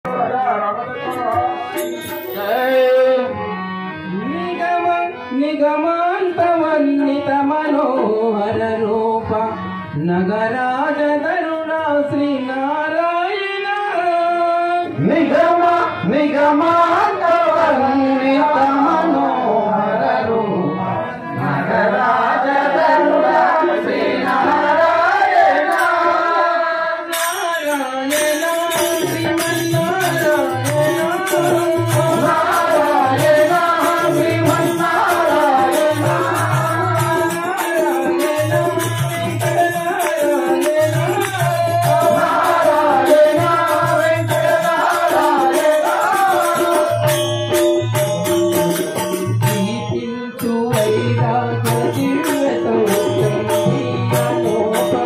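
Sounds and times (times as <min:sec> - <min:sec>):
man singing devotional song: 0:00.0 - 0:55.0
tabla: 0:00.1 - 0:55.0
fast high rattling percussion: 0:27.1 - 0:49.7.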